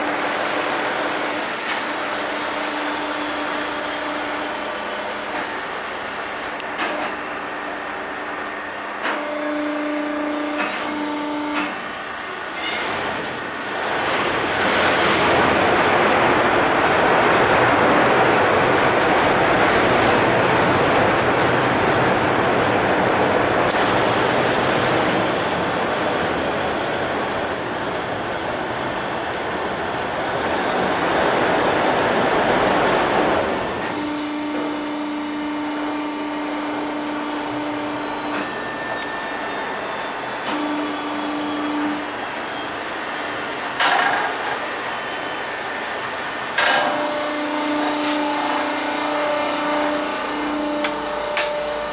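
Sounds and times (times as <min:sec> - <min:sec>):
ferry engine hum: 0:00.0 - 0:51.9
loud rushing noise: 0:13.0 - 0:34.0.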